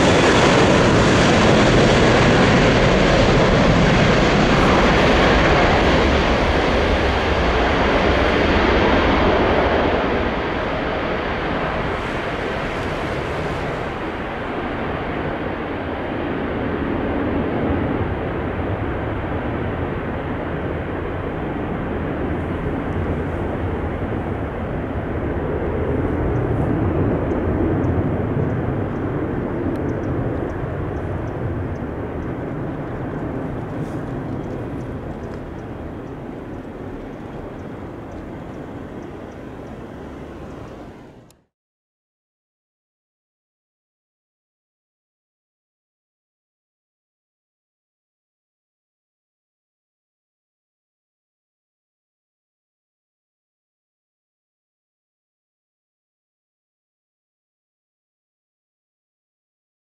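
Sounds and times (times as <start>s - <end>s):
jet airliner taking off: 0.0s - 41.3s.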